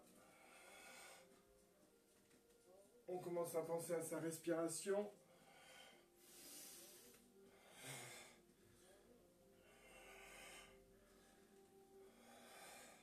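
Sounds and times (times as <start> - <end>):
man breathing slowly: 0.0 - 1.7, 5.2 - 13.0.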